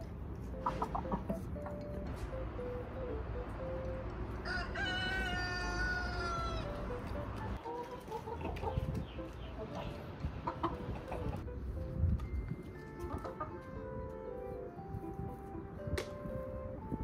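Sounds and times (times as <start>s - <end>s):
chicken clucks: 0.4s - 2.3s, 6.2s - 11.5s, 12.9s - 13.8s
rooster crowing: 4.4s - 6.8s.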